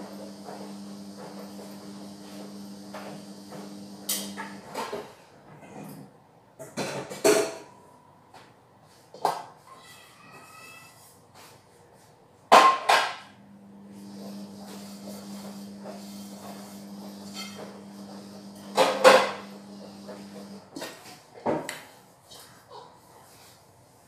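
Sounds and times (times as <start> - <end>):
pots and pans clanking: 14.0 - 21.0.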